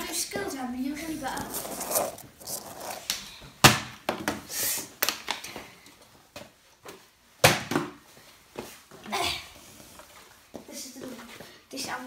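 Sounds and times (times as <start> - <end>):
plastic bottle thudding on tiles: 7.4 - 8.0.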